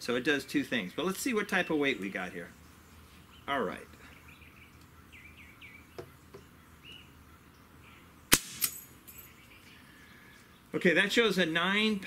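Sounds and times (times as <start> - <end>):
faint bird chirps: 0.8 - 8.3, 9.1 - 10.8
air rifle firing crack: 8.3 - 8.8.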